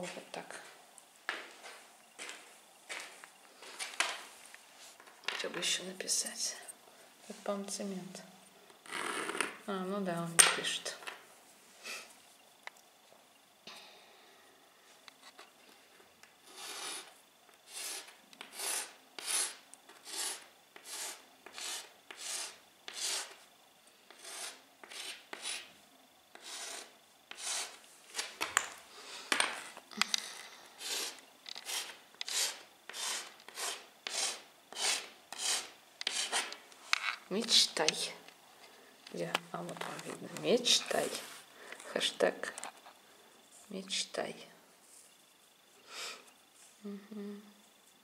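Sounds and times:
chalk scraping on dusty floor: 16.5 - 17.1, 17.7 - 23.4, 24.1 - 25.7, 26.3 - 28.3, 30.8 - 36.6.

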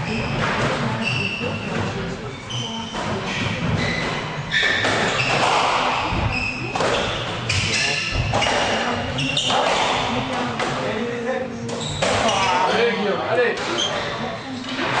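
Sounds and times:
shoes squeaking on wooden floor: 0.0 - 10.2, 11.6 - 12.8
rackets striking squash ball: 2.6 - 10.9, 11.6 - 12.7.

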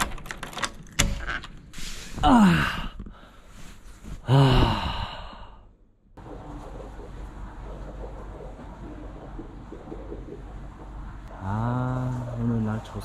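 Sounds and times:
man groaning: 2.2 - 2.9.

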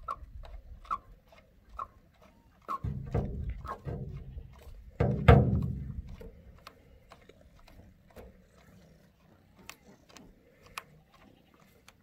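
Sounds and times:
thump: 2.8 - 4.2, 5.0 - 6.0.

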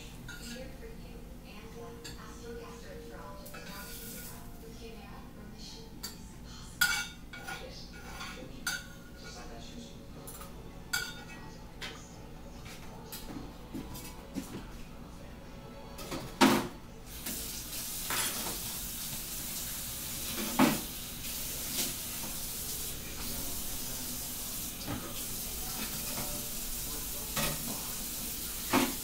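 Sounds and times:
food sizzling in hot oil: 3.8 - 4.4, 17.1 - 29.0.

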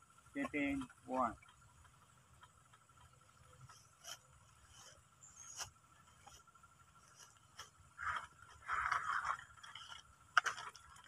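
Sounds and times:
faint scraping and rustling: 3.4 - 11.0.

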